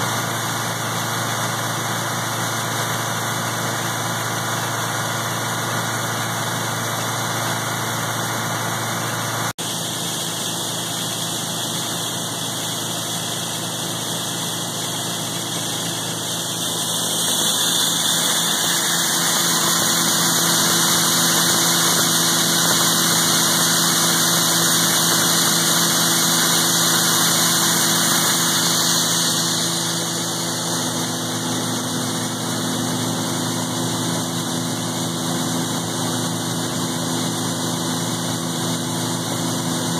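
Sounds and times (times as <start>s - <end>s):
feed mill grinding hiss: 0.0s - 39.9s
tractor engine running: 0.0s - 39.9s.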